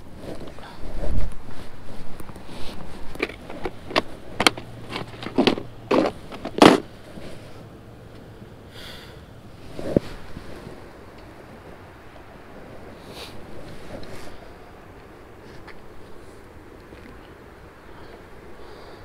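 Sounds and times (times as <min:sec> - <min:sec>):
clothing rustling: 0:00.0 - 0:07.6, 0:09.6 - 0:11.0, 0:12.6 - 0:14.5
fishing tackle clicks and knocks: 0:03.1 - 0:06.8.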